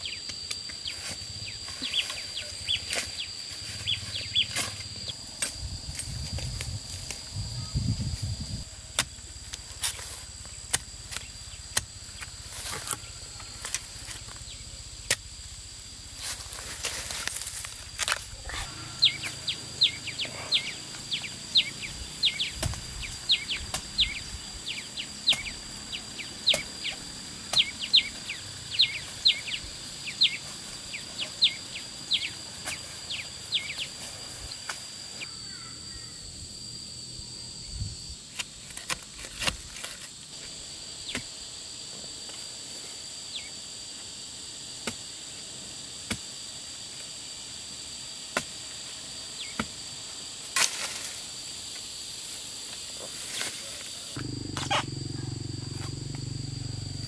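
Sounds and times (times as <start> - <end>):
high insect drone: 0.0 - 57.0.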